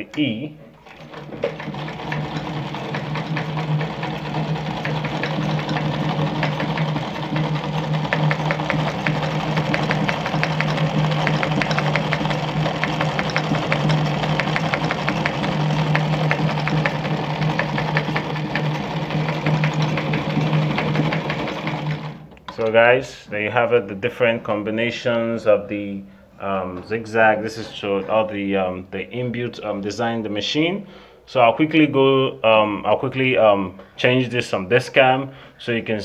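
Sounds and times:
sewing machine running: 0:00.7 - 0:22.7.

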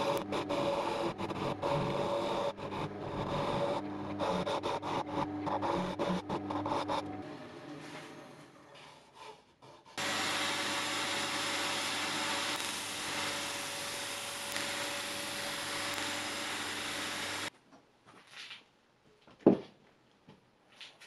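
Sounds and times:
power sanding wood: 0:00.0 - 0:07.1, 0:10.0 - 0:17.5
drill motor hum: 0:00.0 - 0:08.6, 0:10.0 - 0:17.5.

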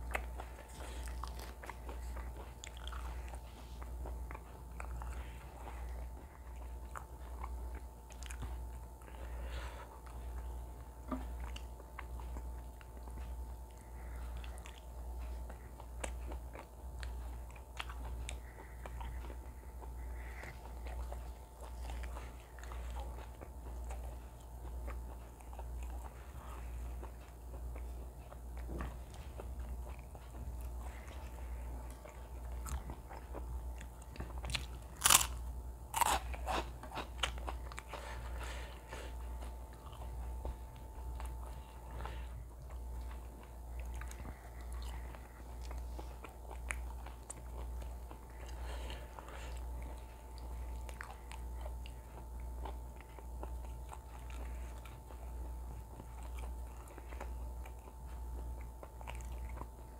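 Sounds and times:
chewing and mouth sounds: 0:00.0 - 0:59.9
steady low hum: 0:00.0 - 0:59.9
crunching bites of chip: 0:34.4 - 0:37.6.

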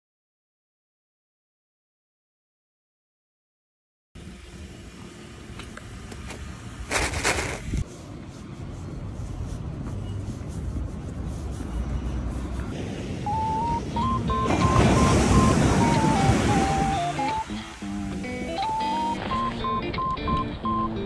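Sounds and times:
low rumbling background noise: 0:04.2 - 0:20.0
melody of stepped tones: 0:13.3 - 0:21.0.

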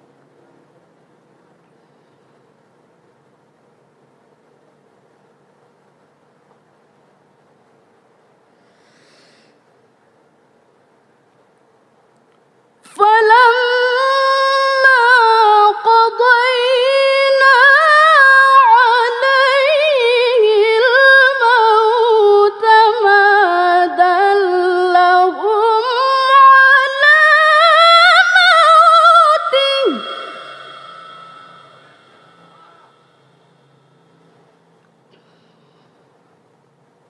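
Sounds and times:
woman reciting melodically: 0:12.9 - 0:32.4.

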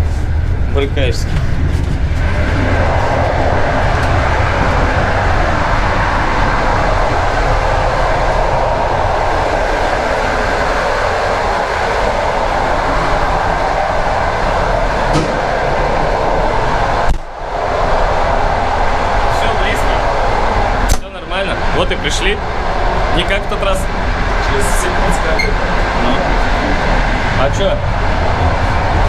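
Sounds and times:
train wheels rumbling on rails: 0:00.0 - 0:29.0
sharp knock: 0:15.1 - 0:15.4.

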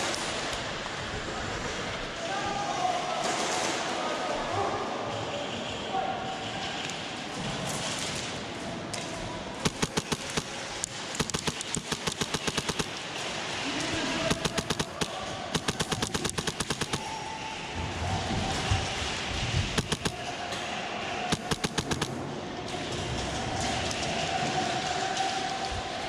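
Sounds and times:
airsoft guns firing bursts: 0:09.6 - 0:17.3, 0:19.7 - 0:20.3, 0:21.2 - 0:22.2.

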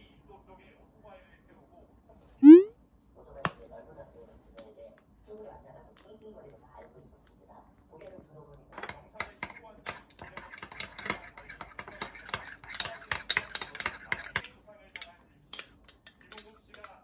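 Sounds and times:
metal spoon stirring in ceramic dish: 0:08.7 - 0:17.0.

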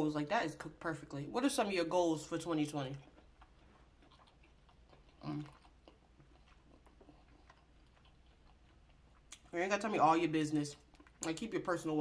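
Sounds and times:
quiet chewing: 0:02.5 - 0:09.6, 0:10.6 - 0:11.6.

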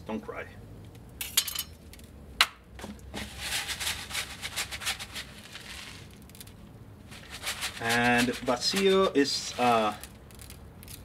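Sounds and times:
salt grains hissing onto meat: 0:03.3 - 0:06.2, 0:07.1 - 0:10.0.

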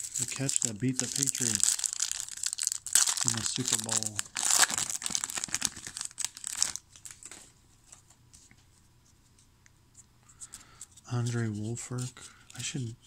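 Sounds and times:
card pack wrapper crinkling: 0:00.0 - 0:07.4
cards being handled: 0:00.0 - 0:08.6.

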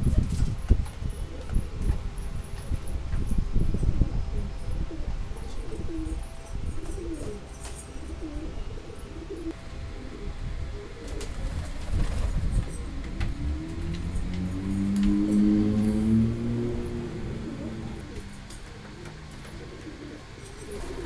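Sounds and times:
pigeons cooing: 0:00.8 - 0:21.0
low rumble: 0:09.5 - 0:19.3.

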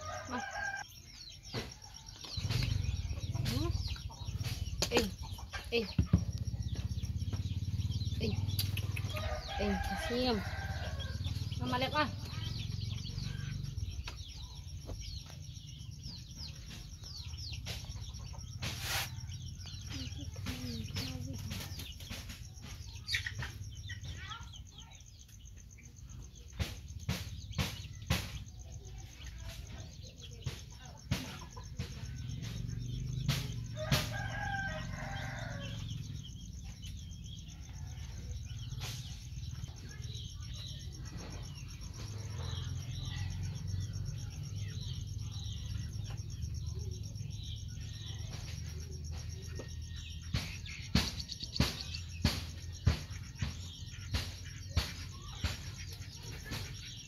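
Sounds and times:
rooster crowing: 0:00.0 - 0:01.0, 0:09.0 - 0:11.8, 0:33.6 - 0:36.1
hens clucking: 0:00.0 - 0:57.0.

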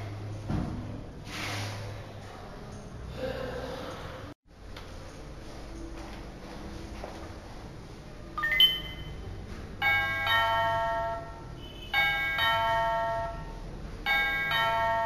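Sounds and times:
short rising beep: 0:08.4 - 0:09.2
ding-dong doorbell chime: 0:09.8 - 0:15.0.

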